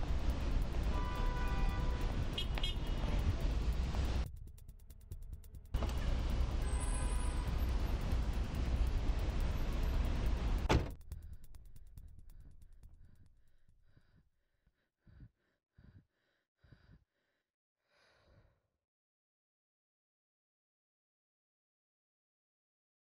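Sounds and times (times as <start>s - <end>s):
thud: 10.6s - 11.0s.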